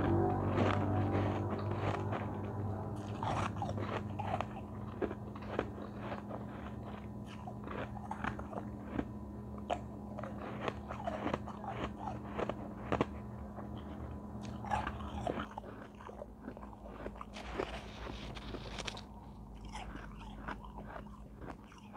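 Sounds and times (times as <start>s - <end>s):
snowy ice being chewed: 0.0s - 21.9s
steady low hum: 0.0s - 21.9s.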